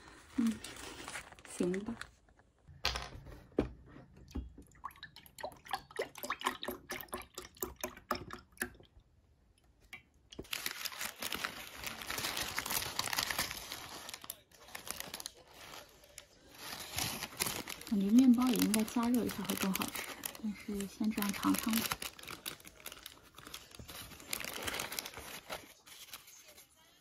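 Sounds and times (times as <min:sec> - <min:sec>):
food wrapper crinkling: 0:00.4 - 0:02.5, 0:10.4 - 0:26.6.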